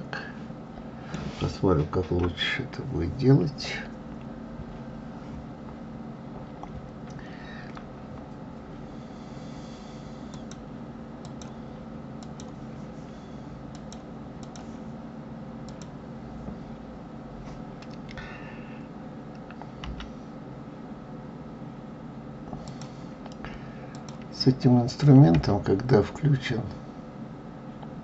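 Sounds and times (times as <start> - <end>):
low background hum: 0.0 - 28.0
mouse and keyboard clicking: 12.2 - 12.6, 13.7 - 14.7.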